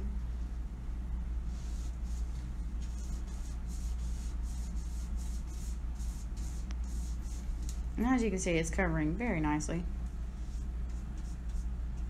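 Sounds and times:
steady low hum: 0.0 - 12.0
paintbrush swishing: 1.5 - 7.8, 10.3 - 12.0.

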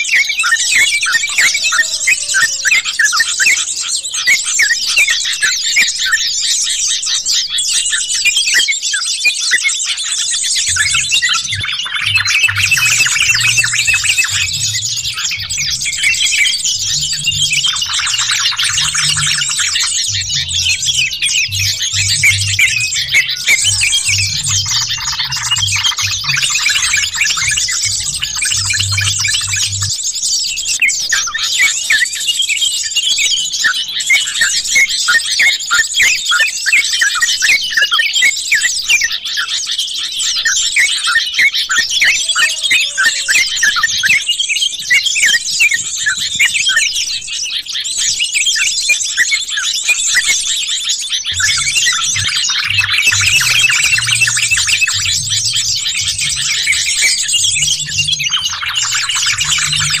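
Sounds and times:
chorus of birds chattering: 0.0 - 60.0.

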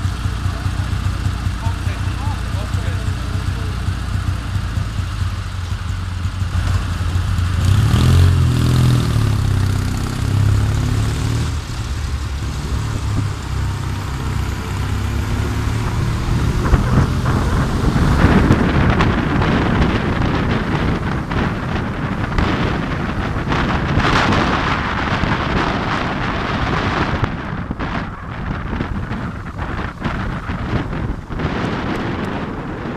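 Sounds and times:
traffic pulling away: 0.0 - 32.9
vehicle engine revving: 0.0 - 32.9
wind noise on microphone: 7.2 - 32.9.

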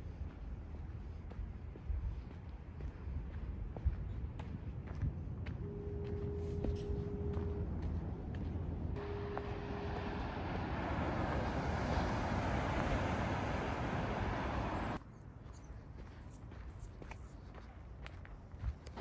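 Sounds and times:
footsteps on dirt trail: 0.0 - 11.1, 15.4 - 19.0
steady tone: 5.6 - 15.0
ocean waves breaking: 9.0 - 15.0.

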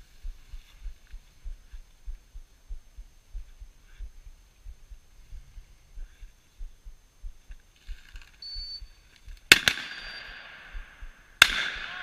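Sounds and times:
shotgun shots echoing: 9.5 - 12.0.

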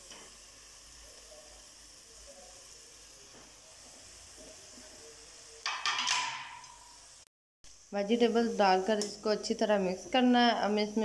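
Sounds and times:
food sizzling in a pan: 0.0 - 11.0.

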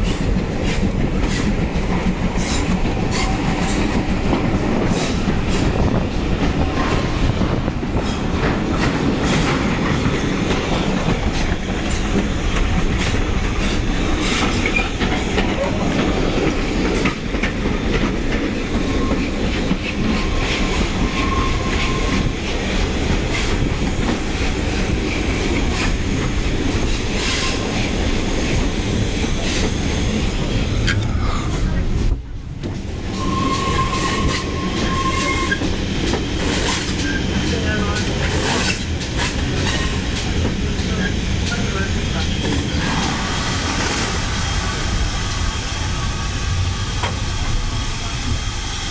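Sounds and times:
train rumble: 0.0 - 48.9
train wheels clickety-clack: 0.0 - 48.9
faint wheel squeal: 33.2 - 35.6.

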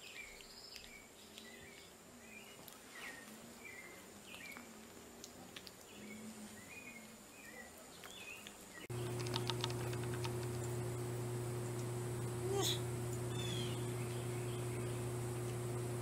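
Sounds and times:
quick clicks: 8.9 - 10.8
steady low hum: 8.9 - 16.0
faint high chirping calls: 13.1 - 15.8.

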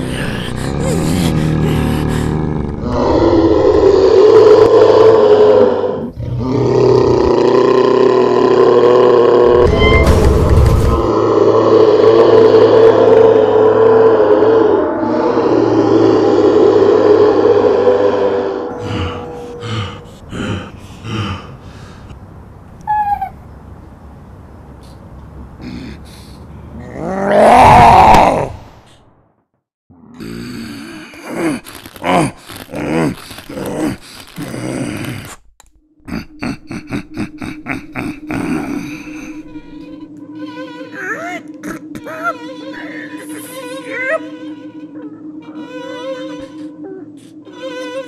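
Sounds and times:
breathy sobs: 0.0 - 5.7, 17.6 - 22.0, 36.1 - 39.6, 41.1 - 43.4
lion-like roar: 0.0 - 21.5, 26.8 - 28.7
high whimper: 22.8 - 23.4, 40.9 - 47.8.

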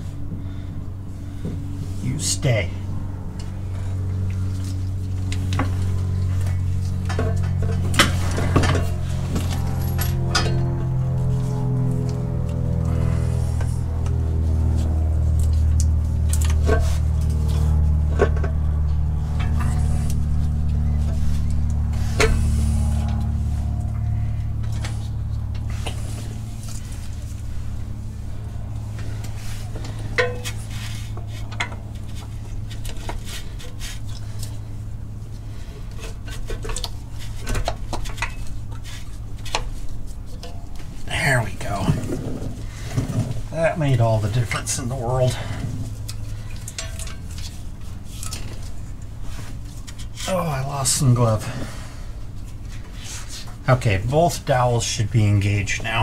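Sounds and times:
steady low hum: 0.0 - 56.0
metallic clinks and knocks: 30.0 - 30.6.

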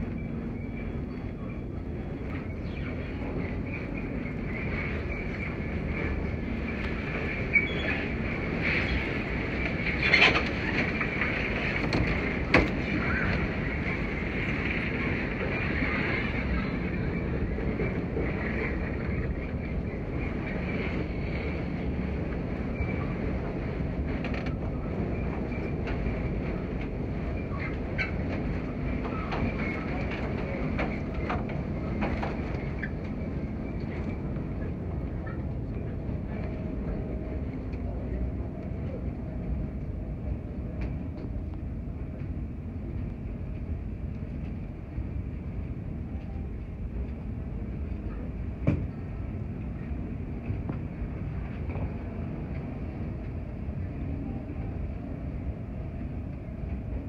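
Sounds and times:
hall ambient rumble and hiss: 0.0 - 57.0.

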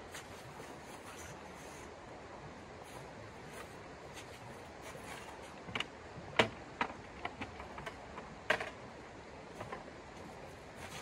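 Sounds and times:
camp gear clicking and knocking: 4.2 - 8.8.

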